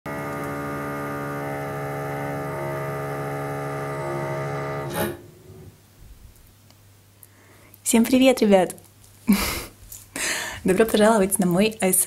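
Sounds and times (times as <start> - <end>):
droning hum of held tones: 0.1 - 5.8.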